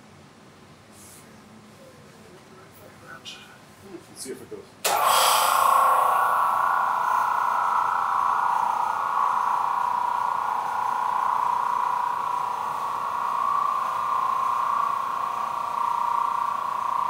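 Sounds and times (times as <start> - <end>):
vacuum pump droning: 4.8 - 17.0.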